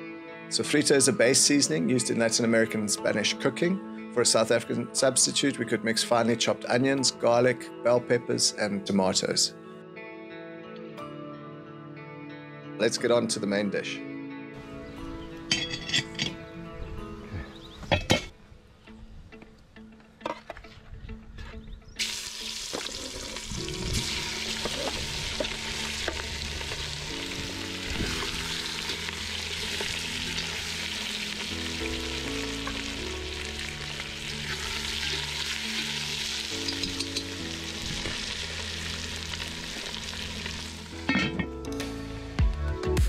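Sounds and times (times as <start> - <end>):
background music with low melody: 0.0 - 43.0
chicken sizzling in hot oil: 22.0 - 41.0.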